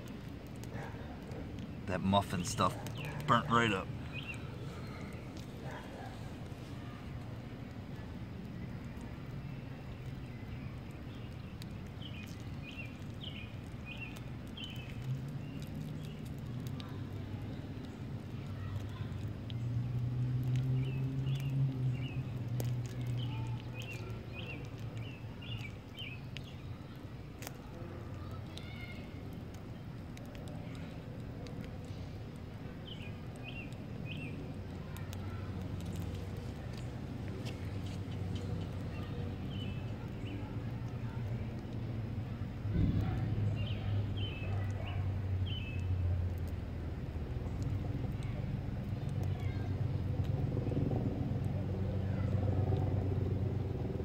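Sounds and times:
steady low rumble: 0.0 - 54.0
bird chirping: 1.9 - 6.2, 9.4 - 16.3.

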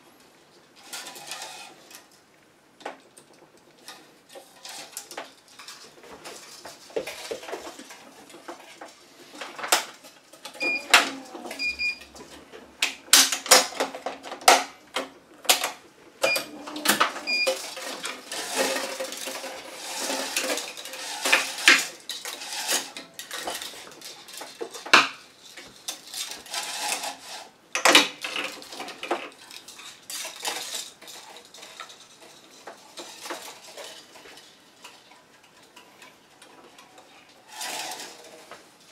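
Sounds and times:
short machine beeps: 10.6 - 10.9, 11.6 - 12.1, 17.3 - 17.5.

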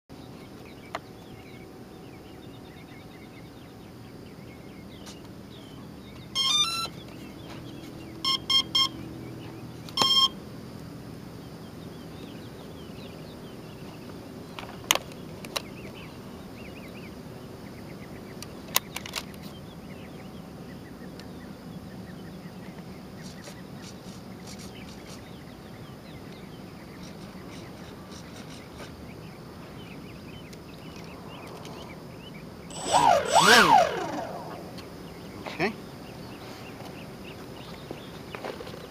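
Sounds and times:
outdoor background noise: 0.1 - 38.9
electronic beeps: 8.3 - 9.0, 10.0 - 10.4
faint bird chirps: 23.2 - 36.8.

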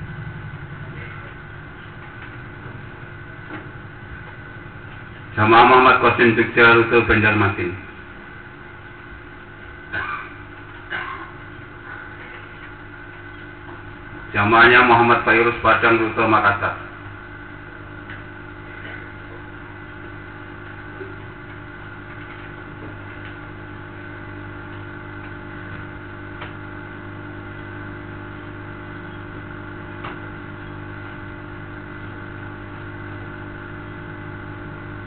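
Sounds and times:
drone of held tones: 0.0 - 4.9.

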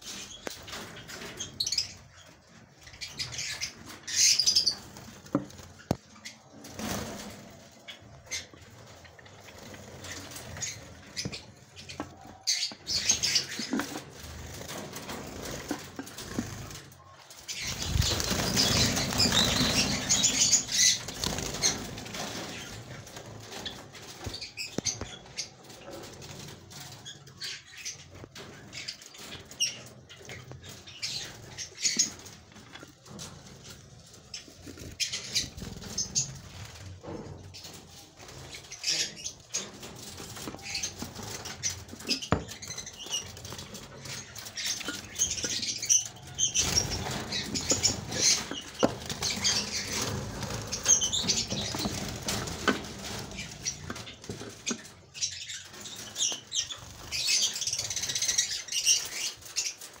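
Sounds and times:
rustling: 8.3 - 26.6
birds flapping wings: 17.5 - 24.5.

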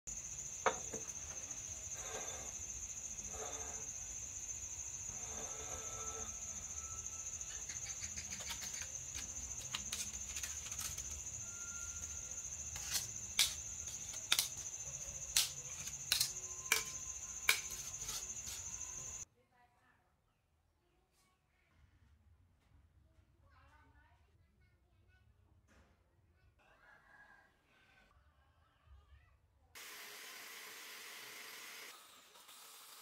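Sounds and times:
high-pitched insect trill: 0.1 - 19.2
steel blocks scraping on steel plate: 0.6 - 4.2, 5.1 - 19.2.

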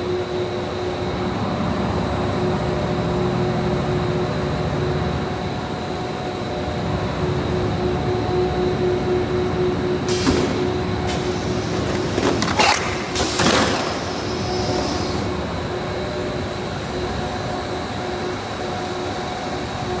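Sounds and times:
pneumatic hiss: 10.0 - 15.4.

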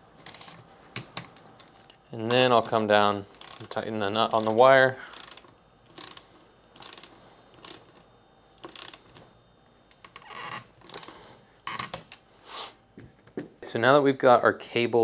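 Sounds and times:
ratchet wrench clicking: 3.4 - 3.7, 4.3 - 8.0, 8.6 - 9.1.

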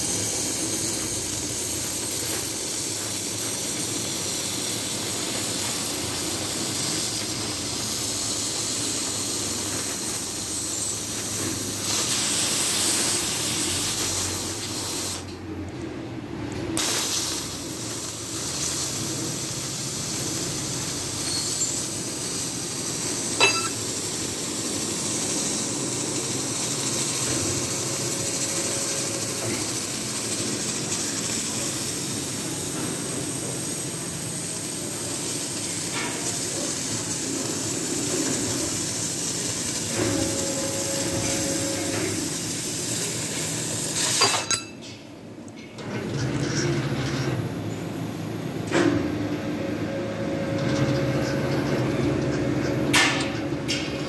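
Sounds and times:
cutting torch hissing: 0.0 - 15.4, 16.8 - 44.6.

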